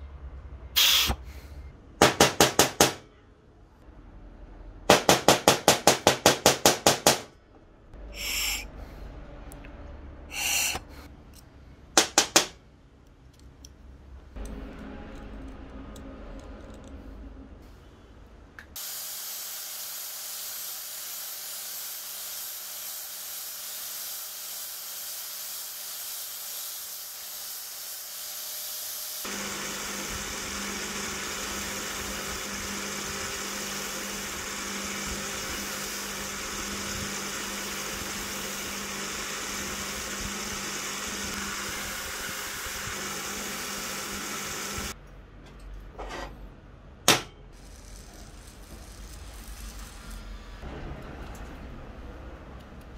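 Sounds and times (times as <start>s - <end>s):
wire wheel grinder hissing: 8.1s - 8.7s, 10.3s - 10.9s, 18.8s - 45.0s, 47.6s - 50.6s.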